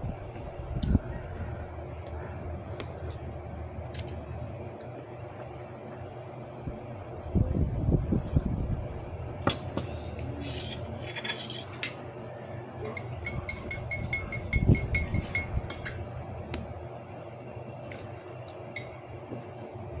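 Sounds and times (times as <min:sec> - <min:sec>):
dinner plate clinking and scraping: 0:10.4 - 0:12.0.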